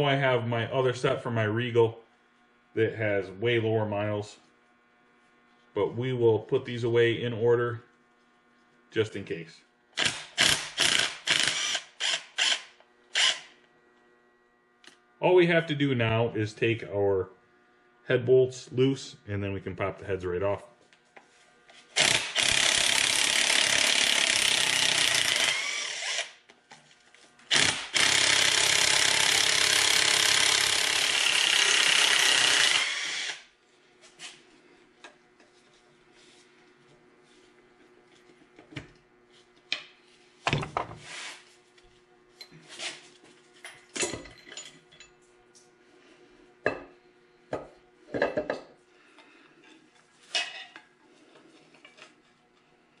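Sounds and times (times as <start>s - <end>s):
power wrench running: 9.9s - 13.6s, 21.7s - 26.5s, 27.5s - 33.5s.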